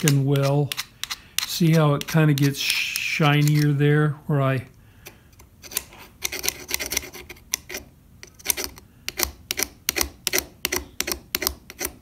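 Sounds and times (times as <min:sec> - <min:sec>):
pliers scraping and clicking on metal: 0:00.0 - 0:03.8, 0:05.0 - 0:12.0.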